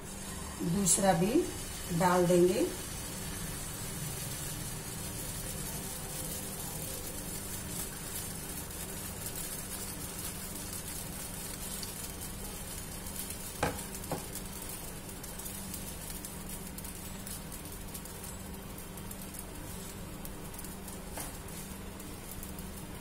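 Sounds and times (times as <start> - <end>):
batter sizzling in a pan: 0.0 - 23.0.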